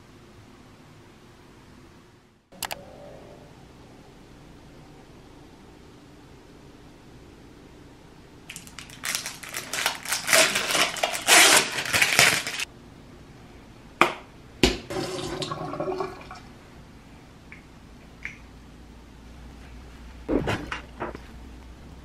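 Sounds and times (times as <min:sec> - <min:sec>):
water running into sink: 0:14.9 - 0:16.5.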